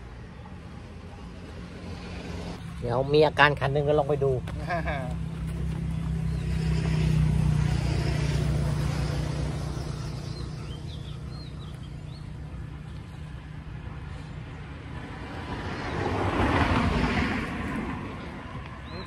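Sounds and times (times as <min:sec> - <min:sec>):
engine drone: 0:00.0 - 0:17.0
bird chirps: 0:09.1 - 0:13.4.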